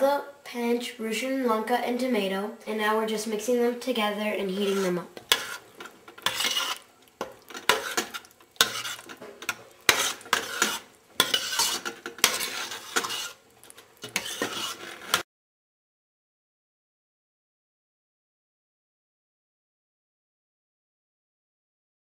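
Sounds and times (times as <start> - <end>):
metal spoon scraping a pot: 4.5 - 15.2.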